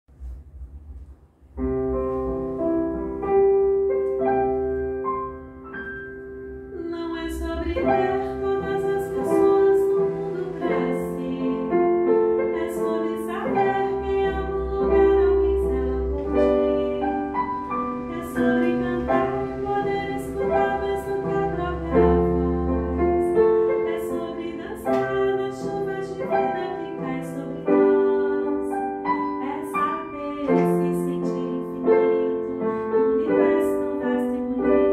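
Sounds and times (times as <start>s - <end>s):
piano: 0.0s - 34.9s
woman singing a slow ballad: 6.7s - 17.4s, 18.0s - 34.9s.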